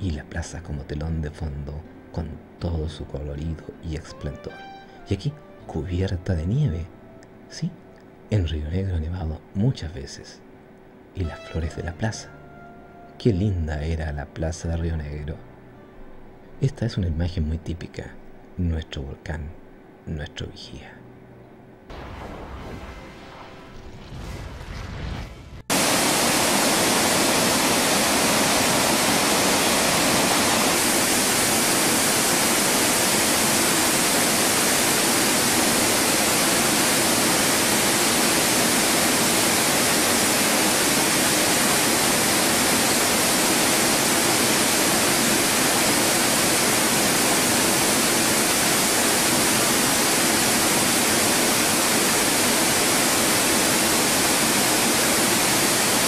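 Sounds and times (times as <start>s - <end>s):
water rushing over weir: 25.7s - 56.0s.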